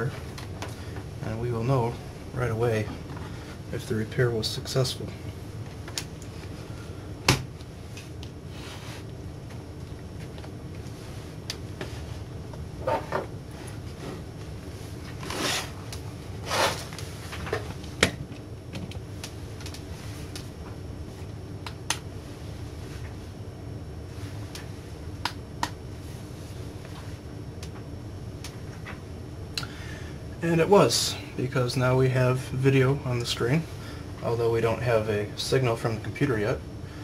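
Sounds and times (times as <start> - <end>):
steady low hum: 0.0 - 37.0
scraping and sliding: 15.1 - 15.8, 16.4 - 17.4.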